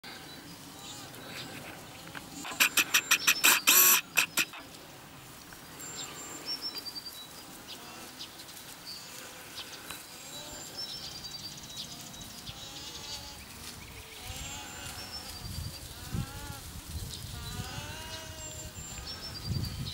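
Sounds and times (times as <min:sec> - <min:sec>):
birds chirping and whistling: 0:00.1 - 0:04.7, 0:17.0 - 0:19.9
harsh animal call: 0:02.3 - 0:04.7.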